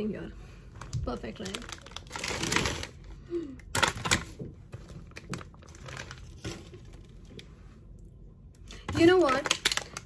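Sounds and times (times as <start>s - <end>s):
plastic packaging crinkling: 0.8s - 7.5s, 8.8s - 10.0s.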